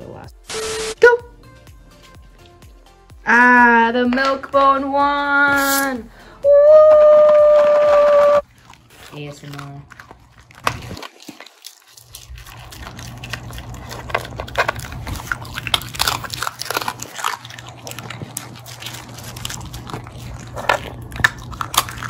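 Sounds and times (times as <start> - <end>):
puppy crunching a dog biscuit: 7.4 - 22.0.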